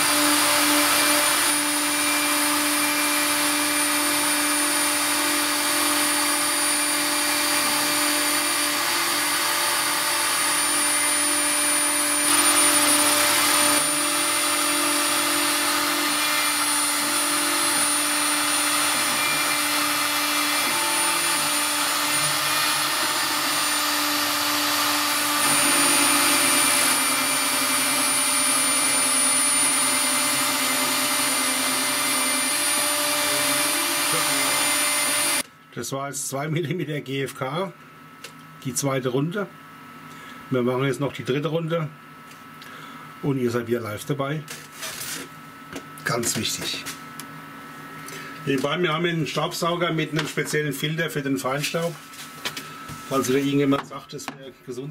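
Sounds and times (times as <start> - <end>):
router spindle milling with high whine: 0.0 - 35.4
dust extraction vacuum: 0.0 - 35.5, 42.5 - 54.9.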